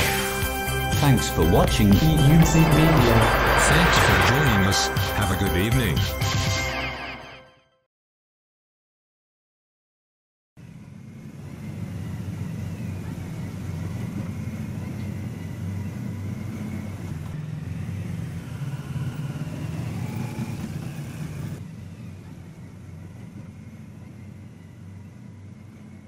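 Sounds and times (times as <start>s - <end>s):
vehicle engines and tyres rumbling: 1.0s - 5.9s, 10.6s - 26.0s.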